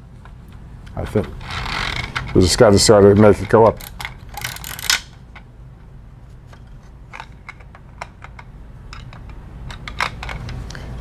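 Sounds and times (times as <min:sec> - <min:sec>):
plastic toy parts clicking: 0:03.2 - 0:05.2, 0:07.1 - 0:10.6.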